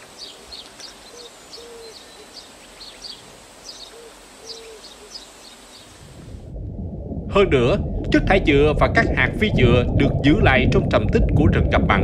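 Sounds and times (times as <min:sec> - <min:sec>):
background hiss: 0:00.0 - 0:06.6
owl hooting: 0:01.1 - 0:02.4, 0:03.7 - 0:05.9.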